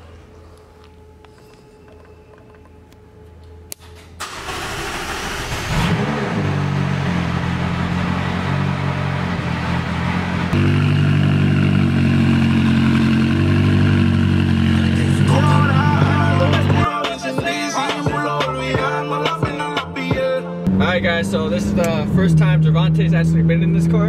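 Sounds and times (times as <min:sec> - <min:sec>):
car engine starting and idling: 0:03.7 - 0:16.9.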